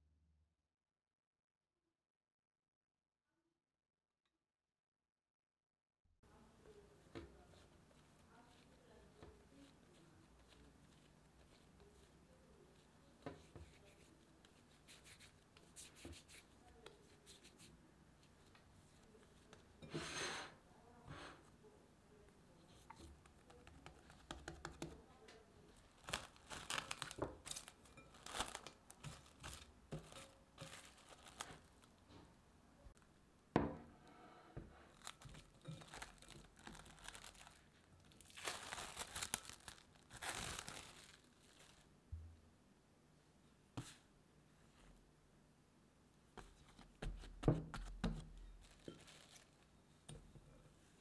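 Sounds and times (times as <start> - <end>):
cling film crinkling and tearing: 25.8 - 32.0, 34.9 - 41.9, 48.6 - 49.6.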